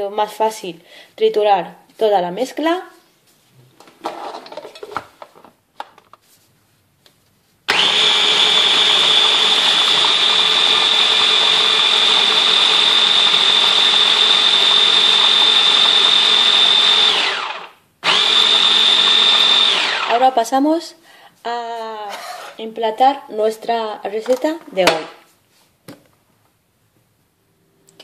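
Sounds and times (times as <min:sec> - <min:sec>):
blender motor whining: 0:07.7 - 0:20.2.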